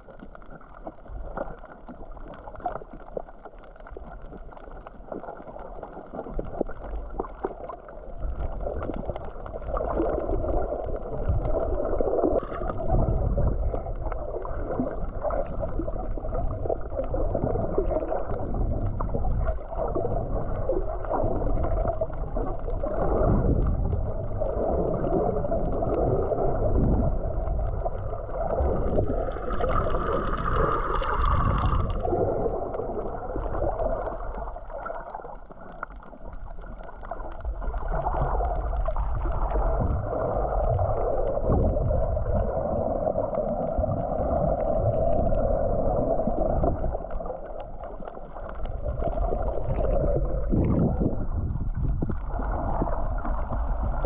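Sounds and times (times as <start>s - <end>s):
water sloshing and gurgling: 0.0s - 54.0s
low rumble: 8.2s - 34.7s, 36.2s - 54.0s.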